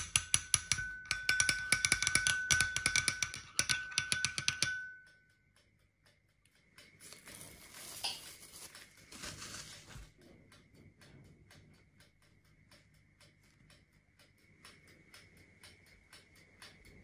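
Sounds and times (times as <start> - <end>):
spoon clinking glass bowl: 0.0 - 5.1
cling film crinkling: 7.1 - 10.1.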